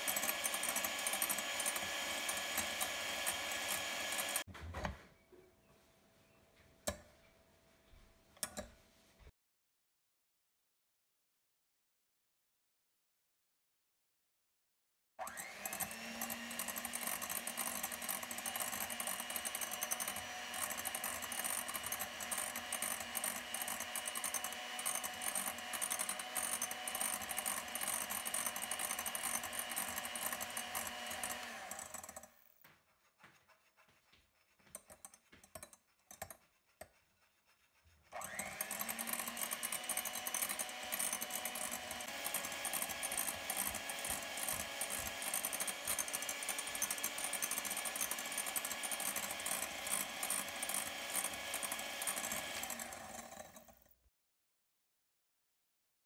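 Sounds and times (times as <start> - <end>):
electric hand mixer whirring: 0.0 - 4.5, 15.2 - 32.6, 38.1 - 53.9.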